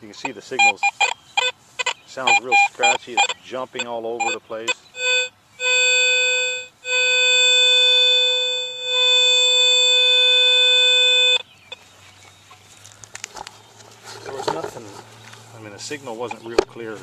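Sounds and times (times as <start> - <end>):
metal detector beep: 0.1 - 11.5
metal detector steady tone: 0.1 - 11.5.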